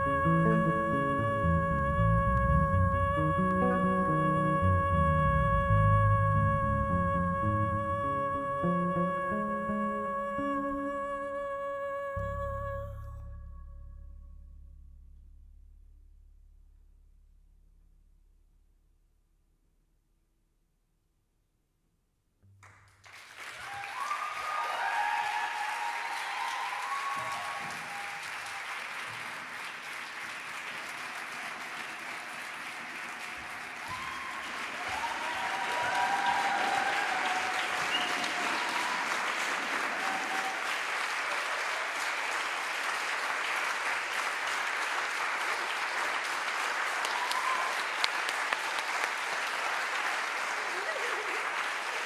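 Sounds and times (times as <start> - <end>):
audience applauding: 22.6 - 52.0
whoops and calls: 23.6 - 28.7, 33.8 - 41.9, 47.0 - 47.9.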